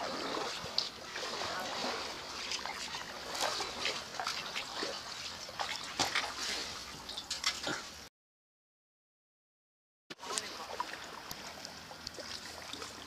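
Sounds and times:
kayak paddle splashing: 0:00.0 - 0:08.1, 0:10.1 - 0:13.0
water dripping and lapping: 0:00.0 - 0:08.1, 0:10.1 - 0:13.0.

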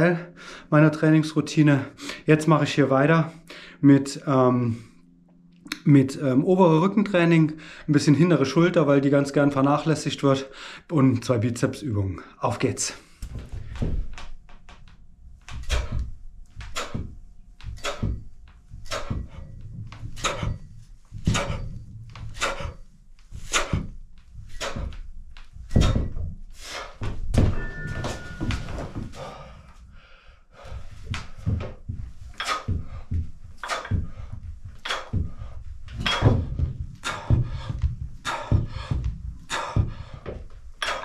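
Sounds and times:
weight-training strokes with dull thumps: 0:12.8 - 0:41.0.

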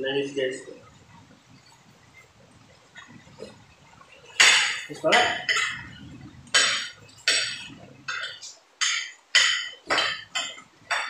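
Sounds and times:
cutlery clinking on plates: 0:04.4 - 0:06.0, 0:06.6 - 0:11.0.

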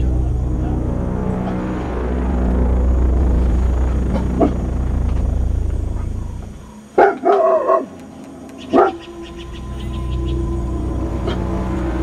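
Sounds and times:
low drone: 0:00.0 - 0:12.0
dog barking: 0:07.0 - 0:08.0, 0:08.7 - 0:09.1.

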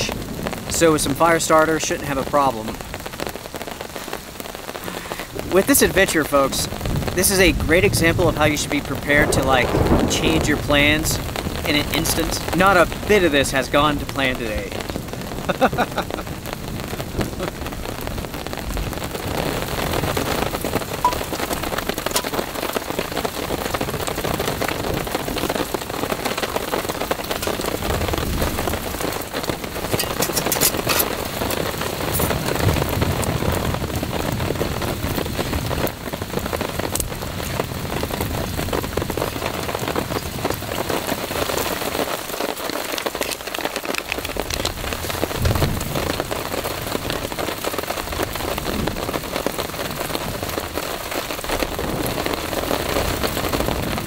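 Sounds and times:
rain on a tarp: 0:00.0 - 0:54.0.

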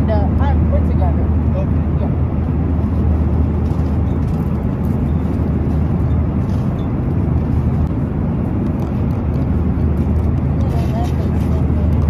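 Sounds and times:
airliner cabin low rumble: 0:00.0 - 0:12.0.

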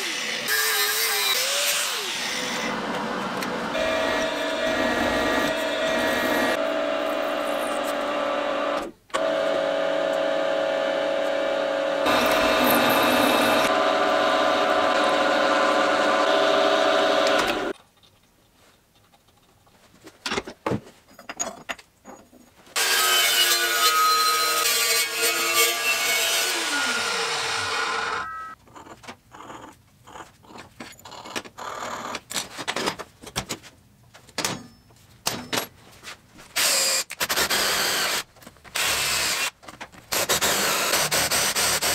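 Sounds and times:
drilling machine humming: 0:03.7 - 0:10.4, 0:11.2 - 0:17.7.

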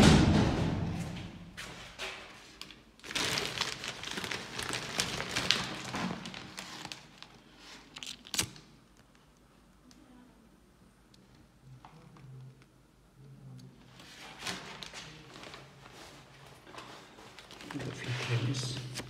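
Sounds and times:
plastic packaging crinkling: 0:02.6 - 0:08.7, 0:16.6 - 0:19.0.

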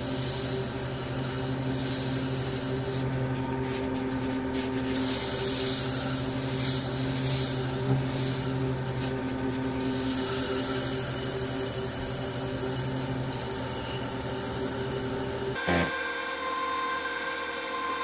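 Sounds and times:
wood lathe humming: 0:00.0 - 0:18.0
paper towel rubbing hiss: 0:03.7 - 0:09.2.

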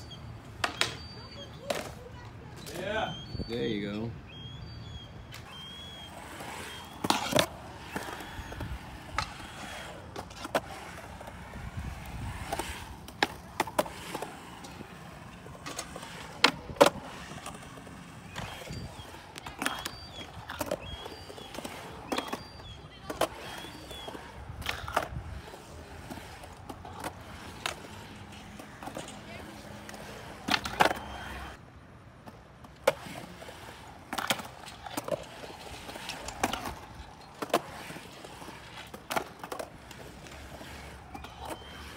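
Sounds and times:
skateboard wheels rolling on concrete: 0:00.0 - 0:41.9
skateboard clacks and smacks: 0:00.5 - 0:02.2, 0:05.4 - 0:31.6.

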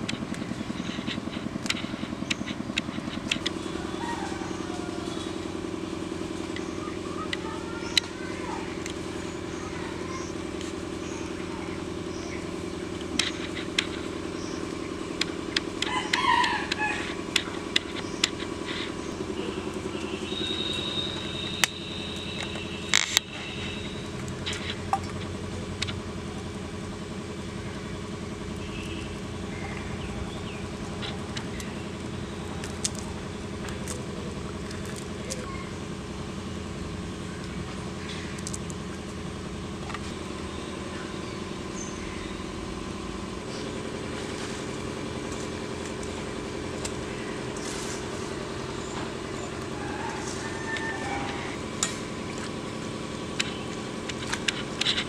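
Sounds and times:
low motor hum: 0:00.0 - 0:55.0
chicken calls: 0:00.7 - 0:05.8, 0:13.2 - 0:21.3, 0:46.8 - 0:52.2.

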